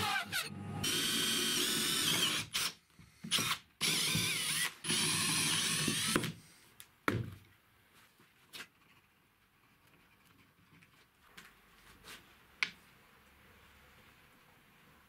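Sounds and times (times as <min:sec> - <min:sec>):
electric drill boring through wood: 0:00.0 - 0:06.3.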